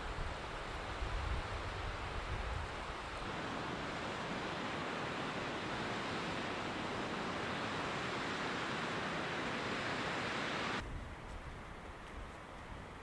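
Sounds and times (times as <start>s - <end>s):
mountain stream rushing: 0.0s - 10.8s.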